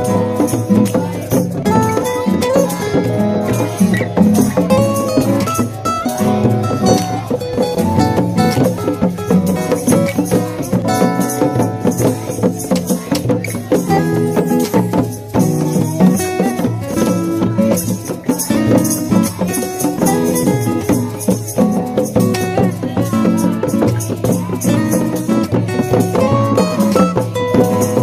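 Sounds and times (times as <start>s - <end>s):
music over fast percussive beat: 0.0s - 28.0s.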